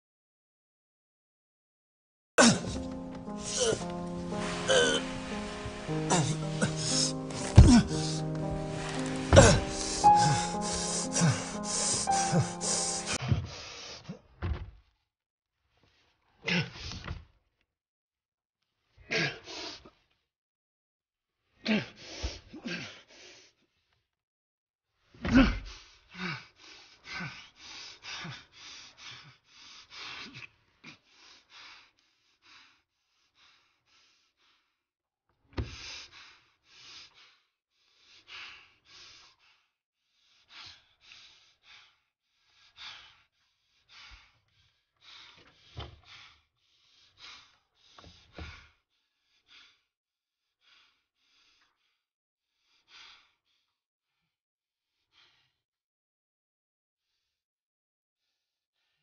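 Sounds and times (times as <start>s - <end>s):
person breathing heavily: 2.4s - 14.1s.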